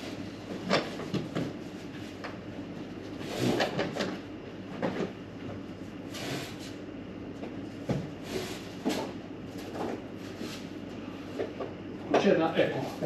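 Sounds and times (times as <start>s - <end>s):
building work scrapes: 3.2s - 3.7s.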